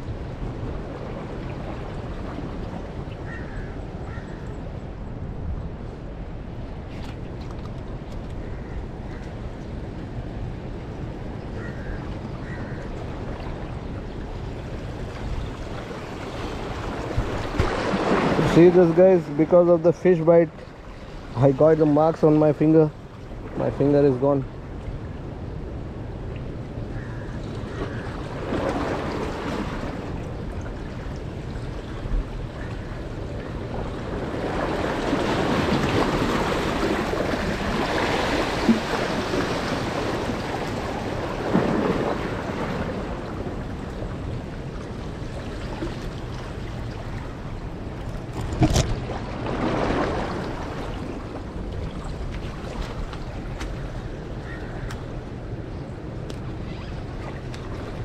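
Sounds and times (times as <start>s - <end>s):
sea waves breaking on rocks: 14.6s - 24.5s, 27.6s - 55.4s.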